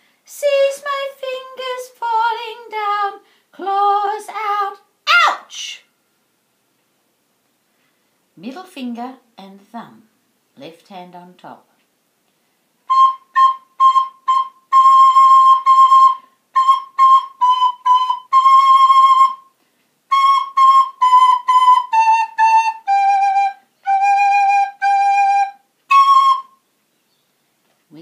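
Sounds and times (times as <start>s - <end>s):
soprano recorder playing a tune: 12.9s - 19.5s, 20.1s - 26.6s.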